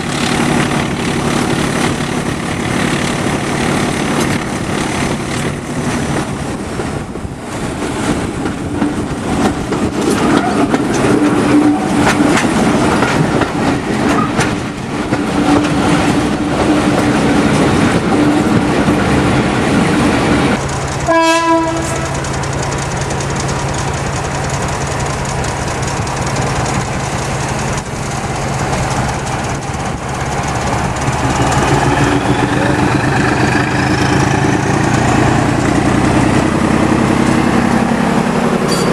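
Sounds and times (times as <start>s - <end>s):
diesel locomotive engine: 0.0s - 38.9s
wheel and rail noise: 0.0s - 38.9s
train horn toot: 21.1s - 22.2s.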